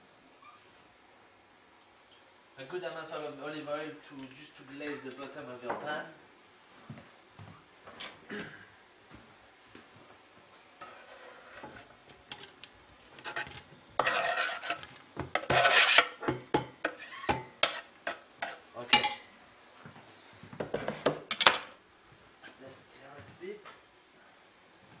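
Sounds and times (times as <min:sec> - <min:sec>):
knife scraping wooden board: 0:13.2 - 0:16.2, 0:16.8 - 0:18.6.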